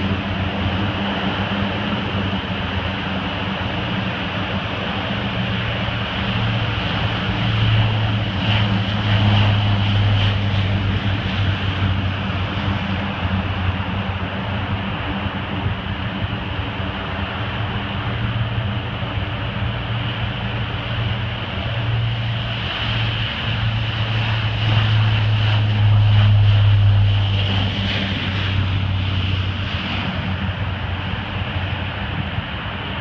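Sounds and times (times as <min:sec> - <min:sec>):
turboprop aircraft propeller drone: 0:00.0 - 0:33.0.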